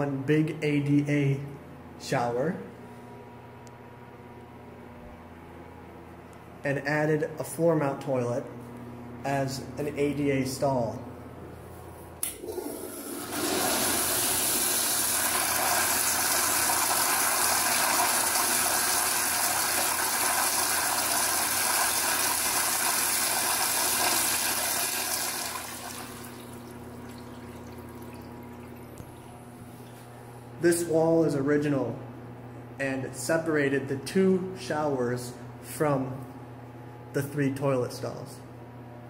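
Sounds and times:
water rushing through toilet bowl: 12.4 - 29.1.

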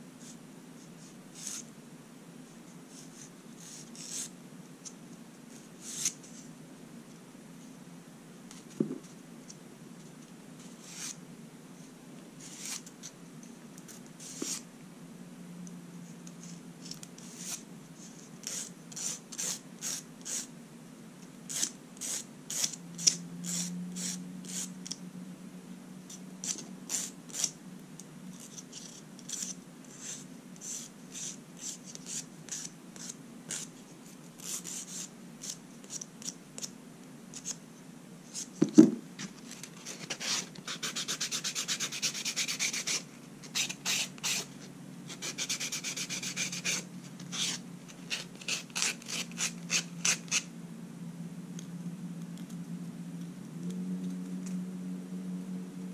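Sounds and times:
steady low hum: 0.0 - 55.9
tools scraping fingernails: 21.5 - 25.0, 28.3 - 33.7.

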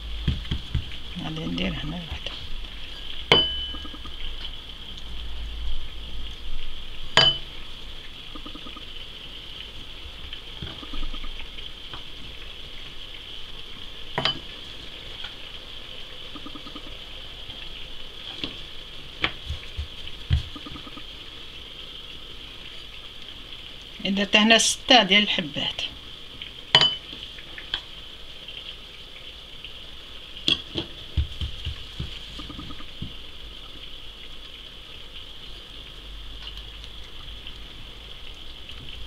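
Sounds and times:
steady hiss: 0.0 - 39.0
soft taps of dough: 0.2 - 1.0, 30.8 - 33.2.

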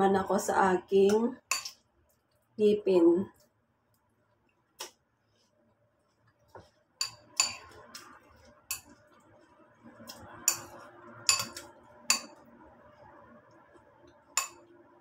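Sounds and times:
metal spoon clinking on ceramic bowl: 7.0 - 7.8, 8.7 - 9.0, 10.4 - 12.4, 14.4 - 14.7.

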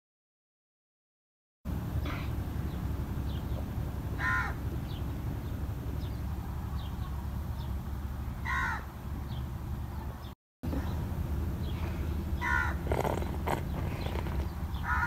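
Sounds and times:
low background rumble: 1.7 - 15.0
small birds chirping: 1.8 - 15.0
crow cawing: 4.2 - 4.6, 8.4 - 8.9, 12.4 - 12.8.

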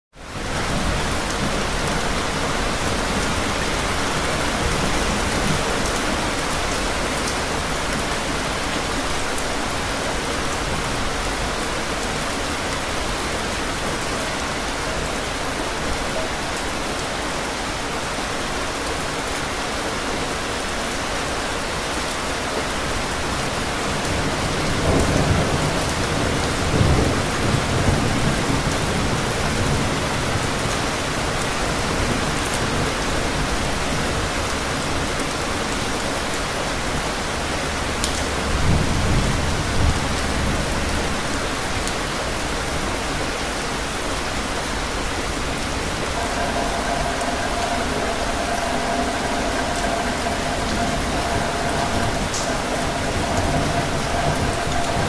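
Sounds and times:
steady rainfall: 0.1 - 55.0
thunder rumbling: 44.8 - 55.0.

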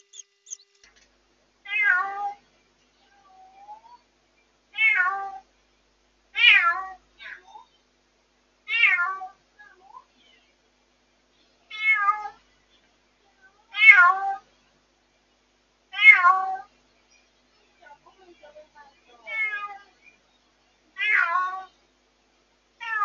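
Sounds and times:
cat meowing loudly: 6.4 - 7.0, 21.0 - 21.7.

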